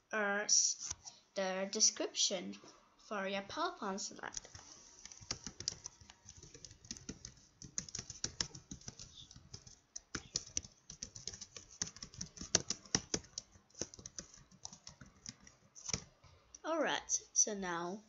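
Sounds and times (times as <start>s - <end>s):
keyboard typing: 4.2s - 16.2s.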